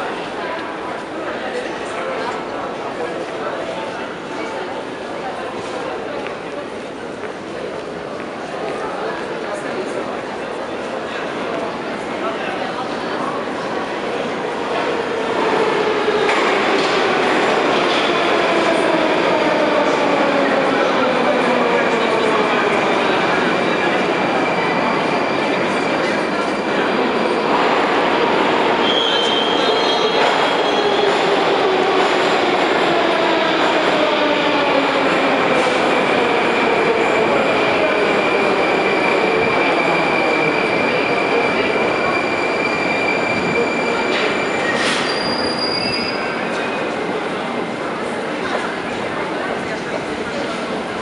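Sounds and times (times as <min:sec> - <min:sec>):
train rumbling through station: 0:00.0 - 0:51.0
high wheel squeal: 0:42.0 - 0:46.4.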